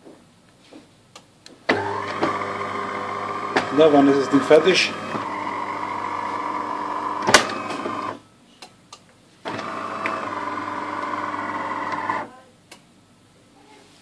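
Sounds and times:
espresso machine pump humming: 1.8 - 8.2, 9.5 - 12.2.

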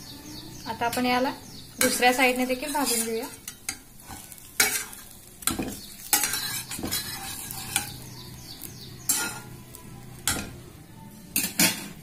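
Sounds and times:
bread sizzling in butter: 0.9 - 10.4
metal spatula scraping frying pan: 1.8 - 9.6.

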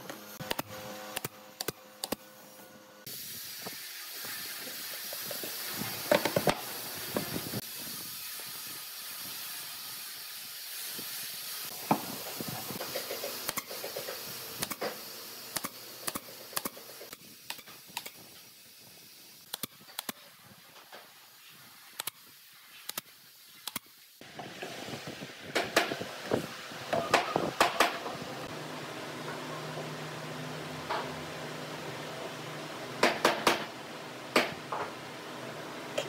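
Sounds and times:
steady hiss: 3.0 - 28.5
nail gun firing: 33.0 - 33.7.

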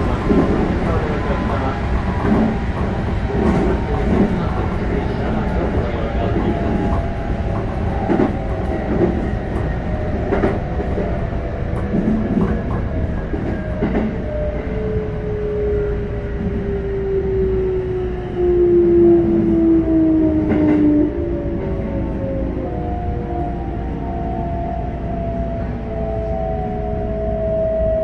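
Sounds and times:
train interior rumble: 0.0 - 28.0.

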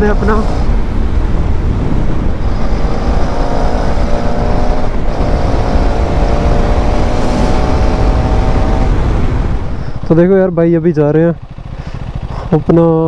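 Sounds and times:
wind rush on microphone: 0.0 - 10.2
motorcycle engine at full throttle: 0.0 - 13.0.

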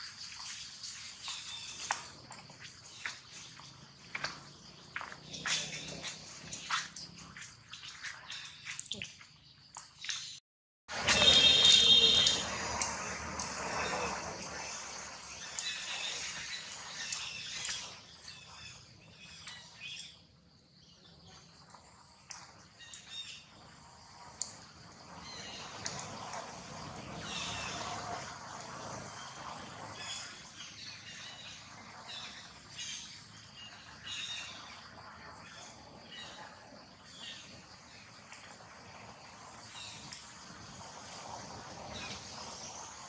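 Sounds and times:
outdoor background noise: 0.0 - 43.0
birds chirping: 11.0 - 20.2.

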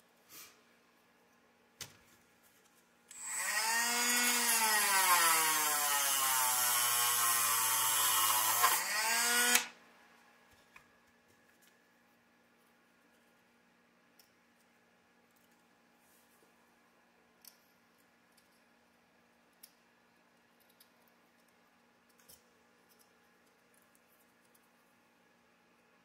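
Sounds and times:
rotary tool grinding: 3.1 - 9.7.

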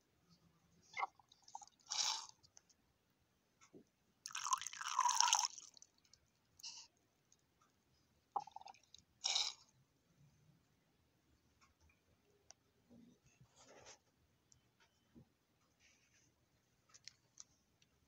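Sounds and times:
liquid pouring into plastic bowl: 4.3 - 5.9.

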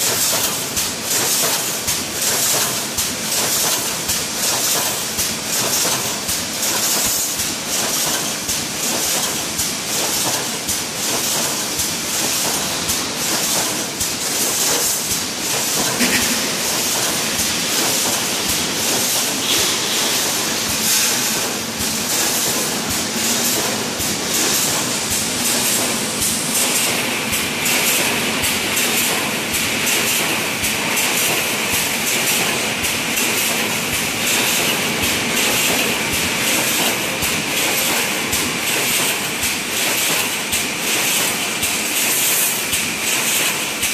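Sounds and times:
hiss: 0.0 - 43.9
welding machine clattering: 0.0 - 43.9
higher hiss: 16.0 - 21.7.

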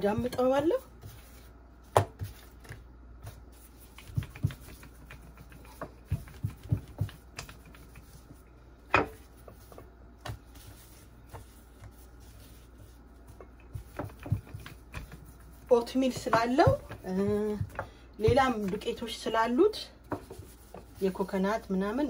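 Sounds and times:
dough tapping on wooden board: 1.9 - 2.3, 4.0 - 8.1, 13.3 - 15.3, 16.1 - 18.8.

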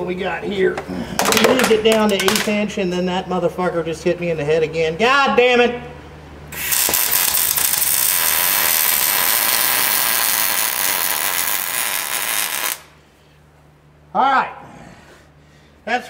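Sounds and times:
welder arc crackling: 6.5 - 13.0.

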